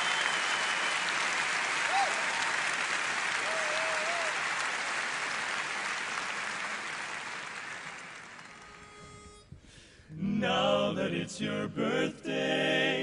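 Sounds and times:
audience applause: 0.0 - 8.8.

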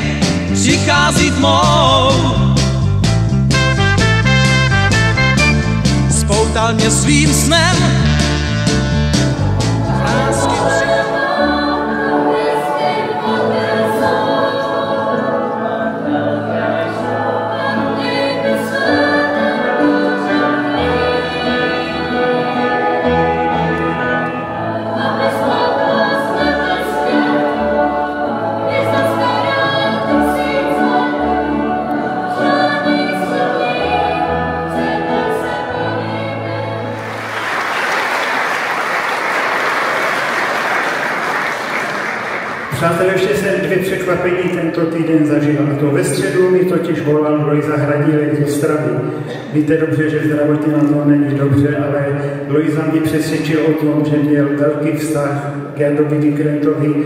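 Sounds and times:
choir singing pop song: 0.0 - 2.6, 9.5 - 37.2
band with pulsing bass: 0.0 - 11.0
audience applause: 37.0 - 42.9.

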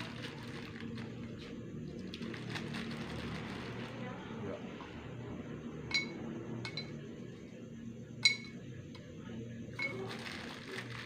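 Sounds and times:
fruit clinking into glass bottles: 8.2 - 8.6, 9.7 - 11.0.

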